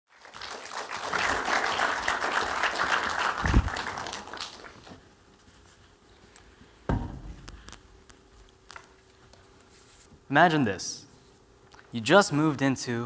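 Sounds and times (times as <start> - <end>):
audience applauding: 0.1 - 5.0
low thump: 6.9 - 7.5.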